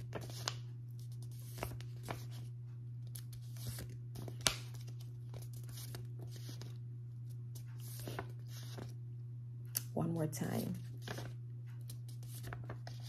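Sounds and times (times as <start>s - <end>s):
paper cards rustling and snapping: 0.0s - 6.8s, 10.8s - 13.0s
steady low hum: 0.0s - 13.0s.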